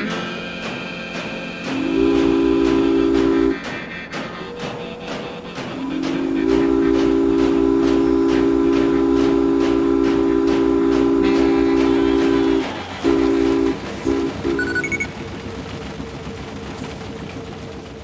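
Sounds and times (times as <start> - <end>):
train whistle blasts: 0.0 - 15.1
rhythmic train clatter: 0.0 - 18.0.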